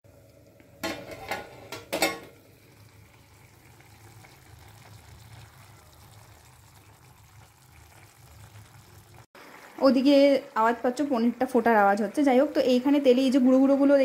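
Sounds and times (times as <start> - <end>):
curry bubbling: 0.1 - 14.0
metal lid clatter: 0.8 - 2.4.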